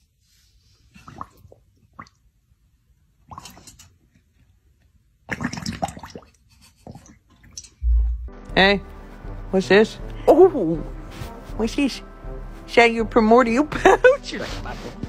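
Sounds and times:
dog lapping water from metal bowl: 3.2 - 4.0, 5.3 - 7.8.

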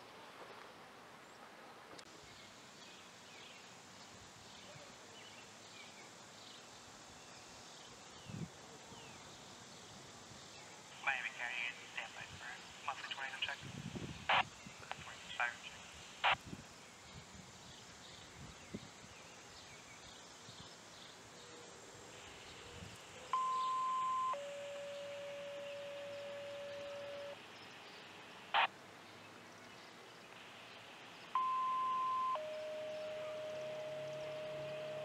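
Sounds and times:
two-tone paging tones: 23.3 - 27.4, 31.4 - 35.0.

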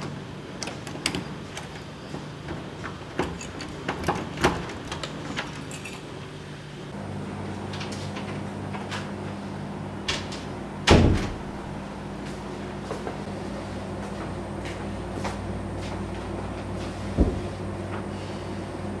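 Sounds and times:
door shutting thud: 10.8 - 11.5.

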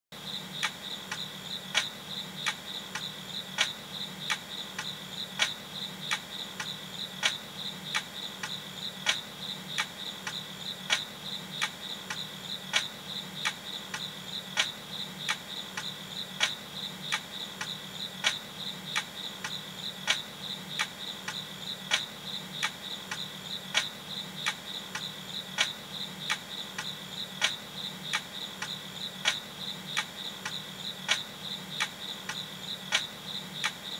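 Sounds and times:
crickets chirping: 0.2 - 33.9
sharp tick: 0.6 - 9.2, 9.8 - 20.2, 20.8 - 33.8.

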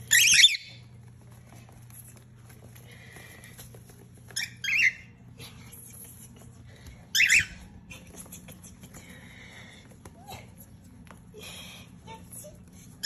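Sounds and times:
cockatiels screeching: 0.0 - 0.8, 4.4 - 5.2, 7.1 - 7.6.

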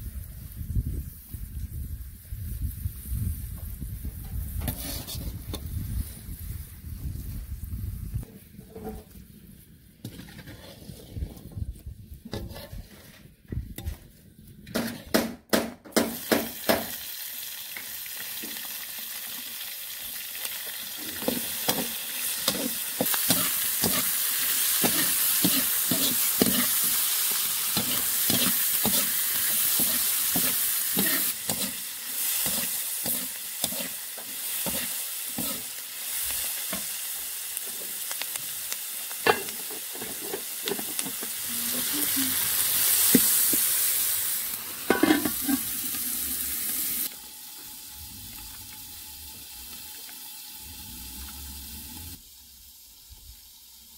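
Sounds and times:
onions sizzling in hot oil: 0.0 - 11.2, 16.0 - 53.9
metal spatula scraping a pan: 4.6 - 5.7, 8.3 - 9.2, 10.0 - 11.6, 12.3 - 14.1, 21.0 - 35.7, 44.9 - 45.7.

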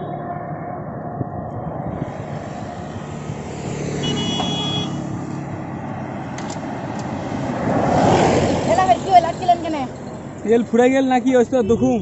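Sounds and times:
short high horn beep: 4.0 - 5.0.

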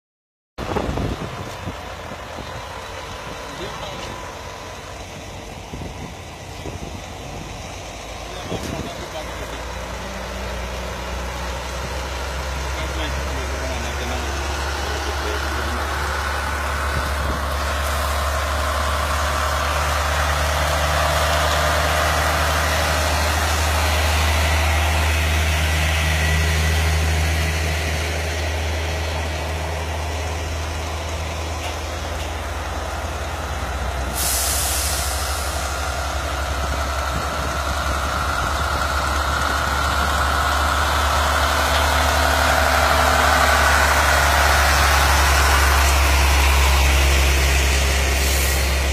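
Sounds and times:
diesel truck engines idling: 0.6 - 48.9
air brake hiss: 34.1 - 35.8, 48.2 - 48.8.

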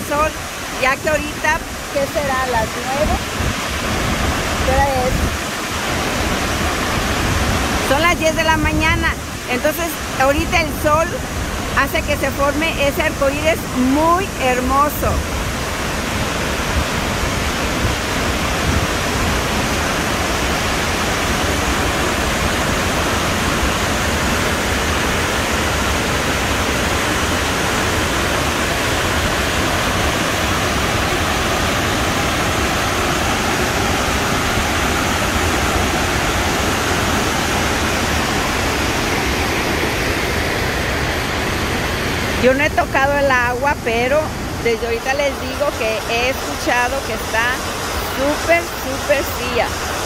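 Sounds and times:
waterfall rushing: 0.0 - 50.0.

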